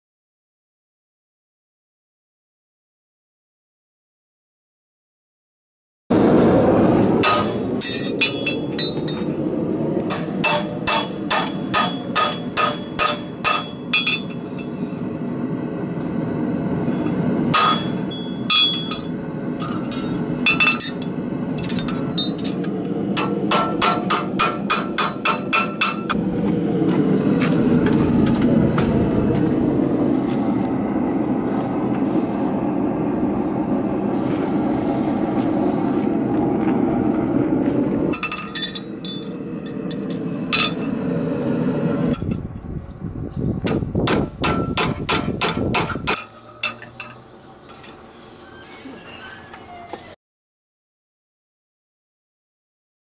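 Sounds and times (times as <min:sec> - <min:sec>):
steady rushing noise: 0:06.1 - 0:46.2
hammer striking horseshoe on anvil: 0:07.2 - 0:09.2, 0:10.1 - 0:14.8, 0:17.5 - 0:21.0, 0:23.2 - 0:26.2, 0:43.7 - 0:48.0.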